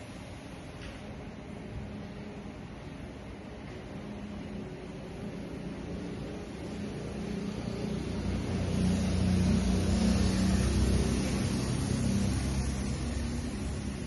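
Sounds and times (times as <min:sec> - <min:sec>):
vehicle engine humming: 0:03.9 - 0:14.0.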